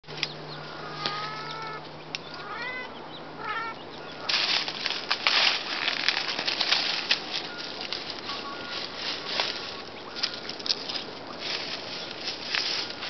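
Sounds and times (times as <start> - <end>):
footsteps crunching through dry leaves: 3.6 - 13.0.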